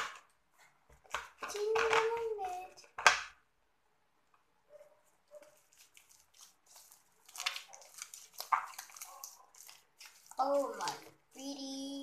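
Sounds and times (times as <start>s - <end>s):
slime squishing: 5.4s - 11.5s.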